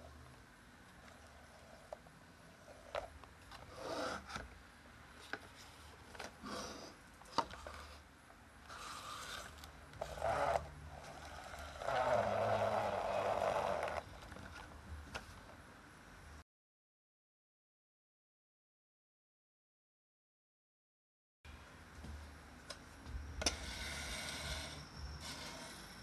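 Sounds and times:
plastic wheels rolling on wood: 0:08.7 - 0:14.8.

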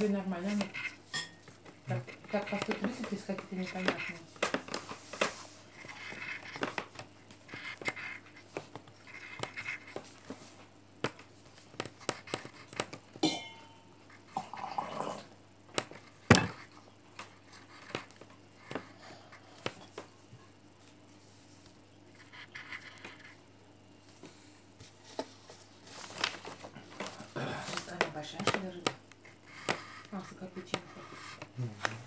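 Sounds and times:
pen scratching and tapping on paper: 0:00.0 - 0:13.2, 0:15.7 - 0:18.9, 0:22.1 - 0:23.4, 0:27.9 - 0:32.0.

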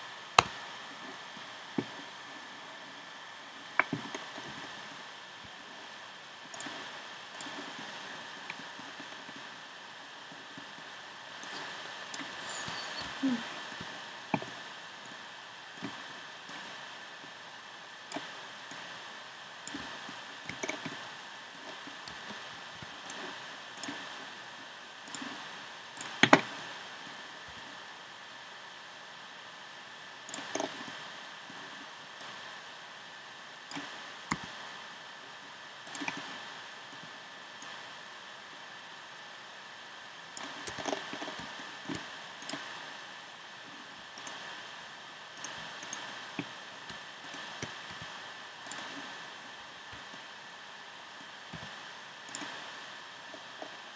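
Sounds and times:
steady hiss: 0:00.0 - 0:53.9
computer mouse and keyboard clicks: 0:00.4 - 0:02.1, 0:03.8 - 0:04.9, 0:06.5 - 0:09.5, 0:18.1 - 0:18.9, 0:19.6 - 0:21.0, 0:21.6 - 0:24.2, 0:25.0 - 0:26.7, 0:30.3 - 0:31.0, 0:33.7 - 0:34.6, 0:35.8 - 0:36.4, 0:40.4 - 0:42.8, 0:44.2 - 0:44.6, 0:45.4 - 0:49.2, 0:51.5 - 0:52.7.

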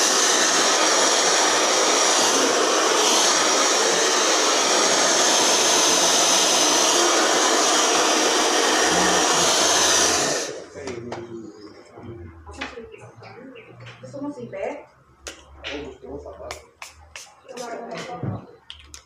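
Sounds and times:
hair dryer blowing: 0:00.0 - 0:10.8.

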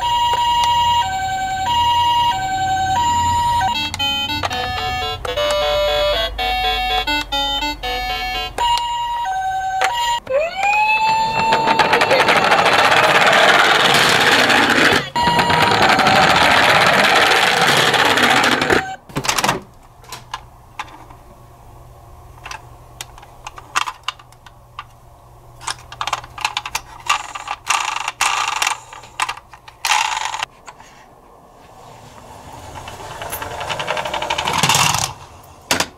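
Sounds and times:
toy siren sound effect: 0:00.0 - 0:19.0
plastic toy clicks and rustles: 0:11.3 - 0:18.9, 0:22.4 - 0:25.0, 0:25.6 - 0:30.8, 0:32.8 - 0:35.2.

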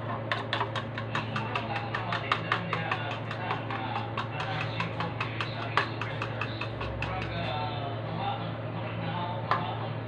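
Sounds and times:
fork beating eggs in plastic container: 0:00.0 - 0:07.7.

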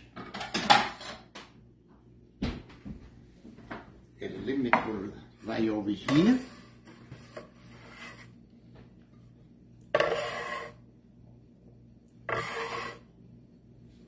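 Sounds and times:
metal scraper scraping wooden board: 0:09.9 - 0:10.8, 0:12.3 - 0:13.1.

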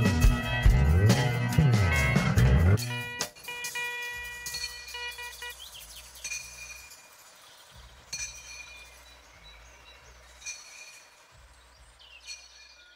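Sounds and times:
sharp ringing clinks: 0:03.1 - 0:09.5, 0:10.2 - 0:11.5, 0:12.1 - 0:12.9
bird chirps: 0:03.7 - 0:12.9.

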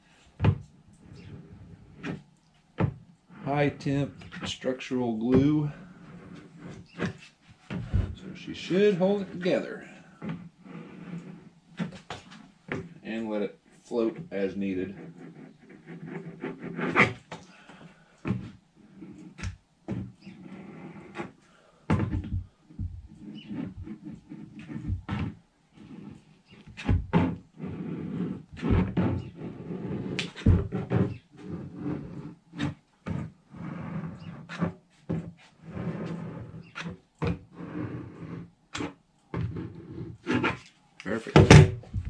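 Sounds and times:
glue gun scraping along wood: 0:03.2 - 0:41.3
wood knocking: 0:41.3 - 0:42.0
heavy thump: 0:41.4 - 0:42.0.

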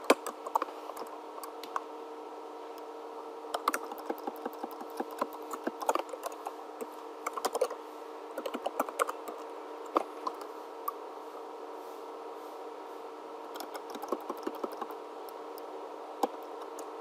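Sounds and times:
faint steady hum: 0:00.0 - 0:17.0
computer keyboard typing: 0:03.5 - 0:07.8, 0:08.4 - 0:10.5, 0:13.5 - 0:15.0, 0:16.2 - 0:16.9.

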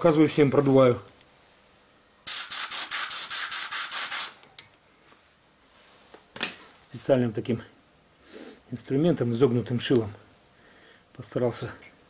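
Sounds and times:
air blow gun hissing: 0:02.3 - 0:04.4.

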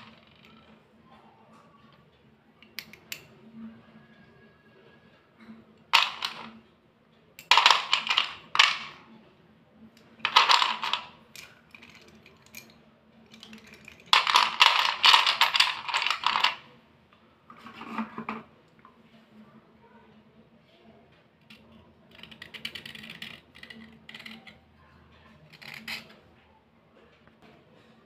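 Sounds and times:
slate pencils clicking together: 0:02.6 - 0:03.3, 0:07.4 - 0:09.0, 0:10.0 - 0:16.6, 0:21.4 - 0:24.6, 0:25.5 - 0:26.2.

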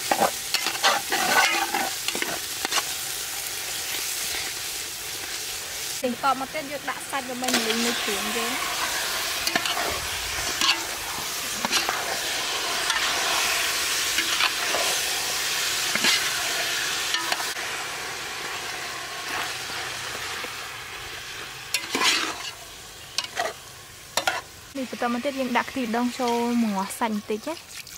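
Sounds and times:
metal ladle scraping pot: 0:00.0 - 0:02.8, 0:07.5 - 0:13.2, 0:21.7 - 0:23.6
meat sizzling in pot: 0:00.0 - 0:27.9.

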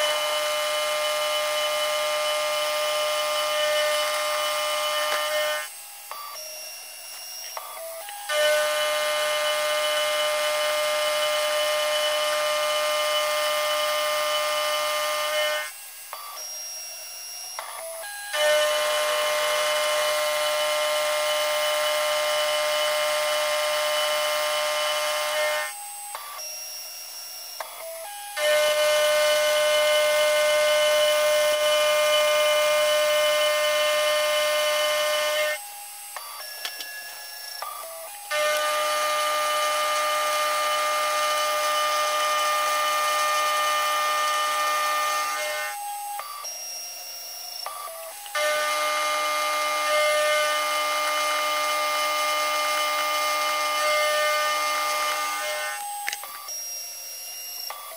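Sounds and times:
end mill cutting aluminium: 0:00.0 - 0:16.3, 0:17.0 - 0:26.2, 0:27.3 - 0:46.6, 0:47.4 - 0:56.5
milling spindle running: 0:00.0 - 0:57.9.

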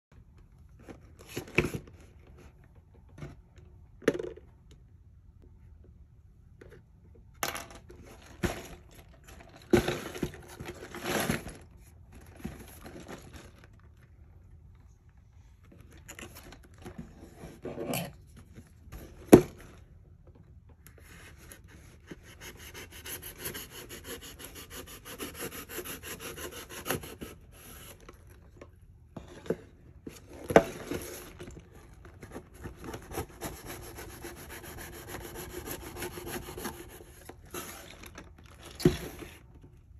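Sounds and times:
hands scraping cardboard: 0:21.7 - 0:28.0, 0:32.6 - 0:37.9
rubbing on cardboard box: 0:32.7 - 0:37.9.

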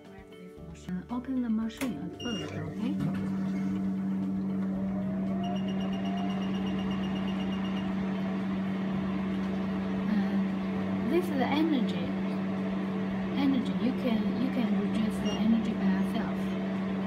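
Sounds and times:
laser machine humming: 0:02.2 - 0:17.0
rising whine: 0:03.2 - 0:17.0
short high beeps: 0:05.4 - 0:07.9.

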